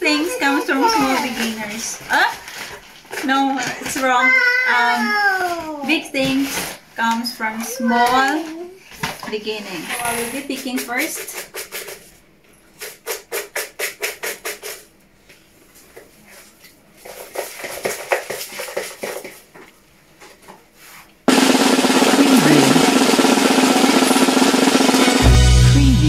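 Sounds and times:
paper slips rattling in plastic bowl: 0:00.1 - 0:04.4, 0:10.4 - 0:12.2, 0:17.0 - 0:19.5
drum roll: 0:21.3 - 0:26.0.

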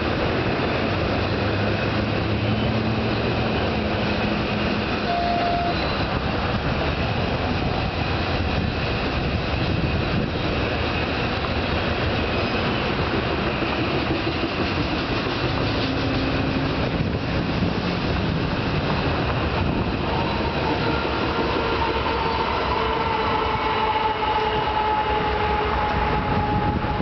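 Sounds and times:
train wheels rumbling on rails: 0:00.0 - 0:27.0.

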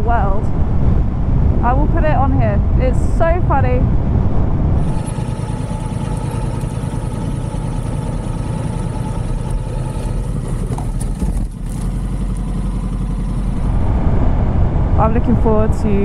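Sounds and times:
motorcycle engine running: 0:04.8 - 0:14.4.

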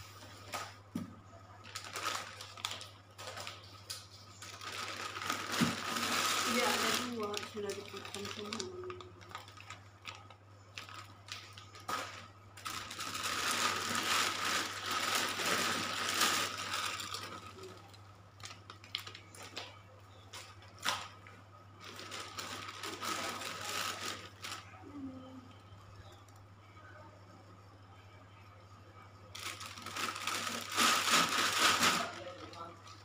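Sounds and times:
plastic bag rustling and crinkling: 0:01.6 - 0:19.7, 0:21.8 - 0:24.8, 0:29.4 - 0:32.7.

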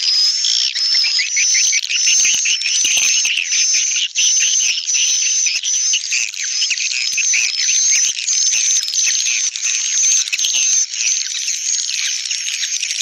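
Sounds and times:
swiftlets twittering and chattering: 0:00.0 - 0:13.0.

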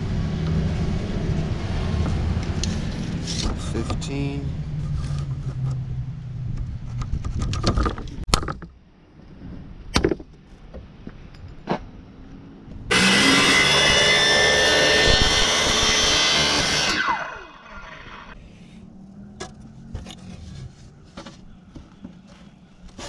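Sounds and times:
circular saw cutting plywood: 0:12.9 - 0:18.4.

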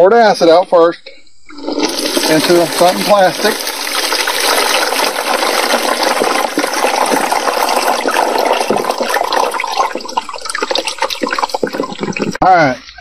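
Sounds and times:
liquid pouring into a plastic tub: 0:01.5 - 0:12.8.

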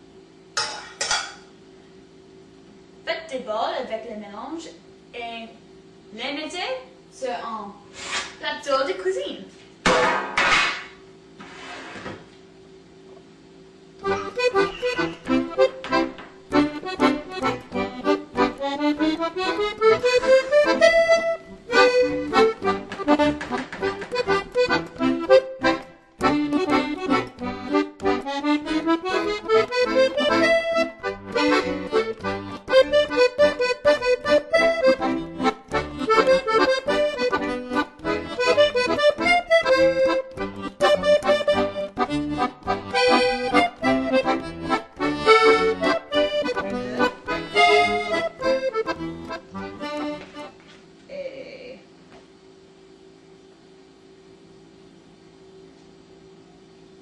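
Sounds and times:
instrumental background music: 0:14.0 - 0:50.5.

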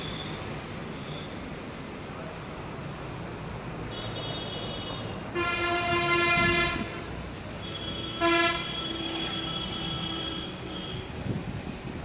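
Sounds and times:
vehicle horn: 0:03.9 - 0:06.9, 0:07.6 - 0:11.0.

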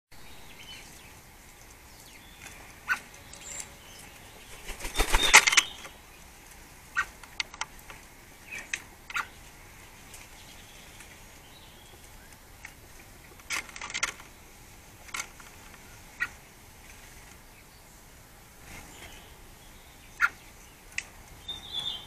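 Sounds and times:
bird wings flapping: 0:04.4 - 0:05.9.

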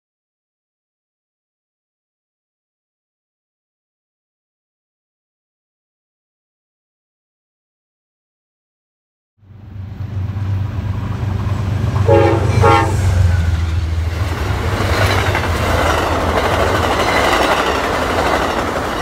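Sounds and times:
locomotive low hum: 0:09.4 - 0:19.0
train wheels rushing on rails: 0:09.6 - 0:19.0
train horn blasts: 0:12.0 - 0:14.0.

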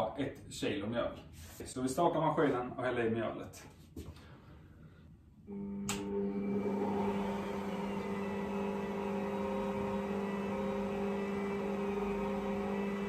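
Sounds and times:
stand mixer motor humming: 0:05.5 - 0:13.0.

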